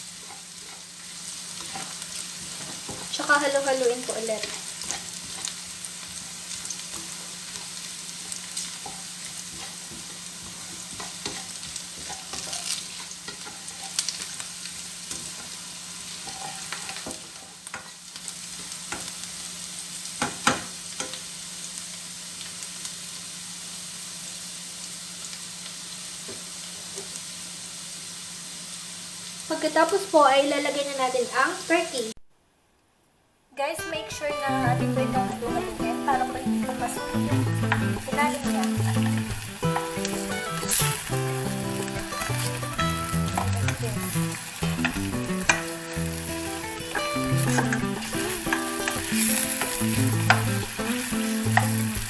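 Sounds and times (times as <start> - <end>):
food sizzling in hot oil: 0.0 - 32.2, 33.6 - 52.0
spatula scraping a pan: 6.9 - 14.4, 15.1 - 18.0, 46.7 - 50.6.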